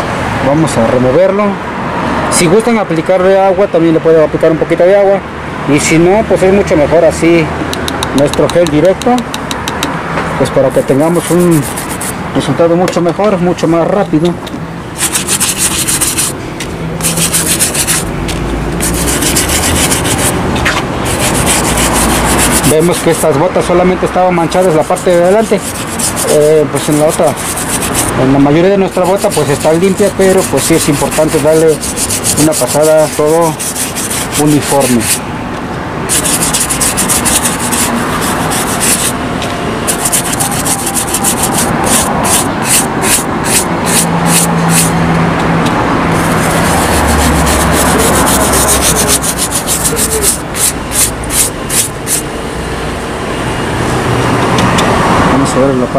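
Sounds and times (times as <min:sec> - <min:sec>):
brush scrubbing suede boot: 0:10.6 - 0:12.1, 0:15.0 - 0:16.4, 0:17.0 - 0:23.4, 0:24.6 - 0:35.2, 0:36.1 - 0:39.1, 0:39.9 - 0:44.9, 0:46.2 - 0:52.2.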